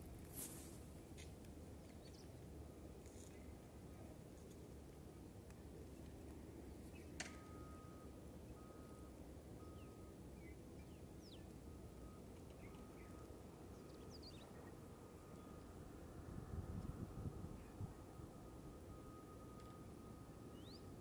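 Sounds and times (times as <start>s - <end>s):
faint high bird chirps: 20.5s - 21.0s.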